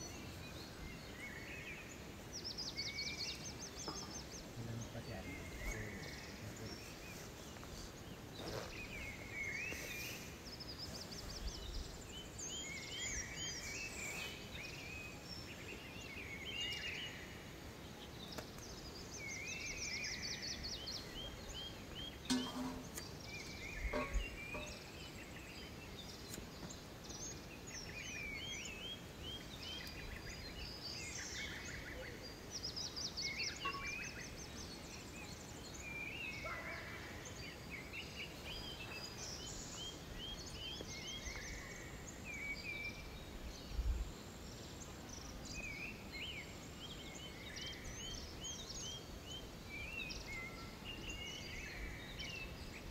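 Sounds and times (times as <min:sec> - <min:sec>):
birds chirping and trilling: 0:00.0 - 0:52.9
sharp knocks: 0:22.3 - 0:23.0.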